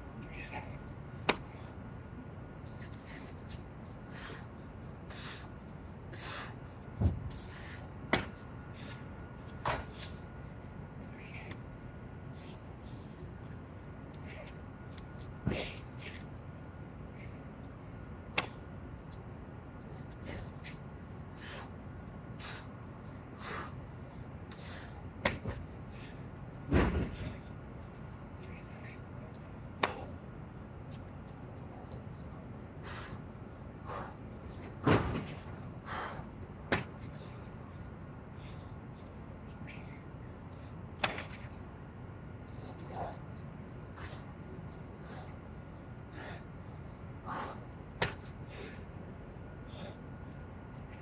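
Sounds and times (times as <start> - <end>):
man breathing hard: 2.6 - 10.7, 19.8 - 27.9, 32.7 - 34.6, 35.4 - 41.6, 42.5 - 51.0
sharp hand slap: 29.8 - 30.1, 48.0 - 48.2
slap on concrete: 48.0 - 48.2.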